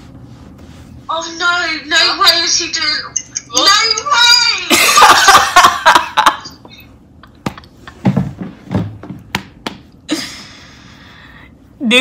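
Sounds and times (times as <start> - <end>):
woman laughing loudly: 4.7 - 6.8
sharp knocks and taps: 8.7 - 9.9.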